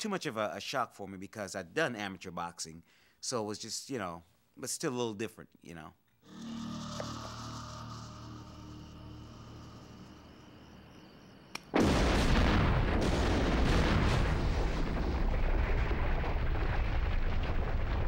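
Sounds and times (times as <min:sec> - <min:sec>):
loud explosion blast: 0:11.7 - 0:18.0
heavy rumble of fire crackling: 0:11.8 - 0:18.0.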